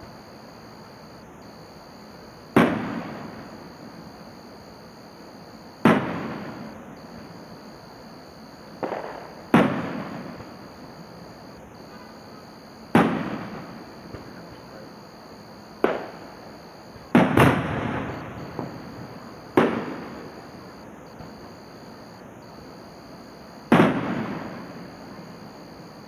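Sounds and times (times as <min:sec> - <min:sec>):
distant fireworks bursting: 0:00.0 - 0:26.0
small firework pop: 0:08.8 - 0:10.2, 0:15.8 - 0:16.2.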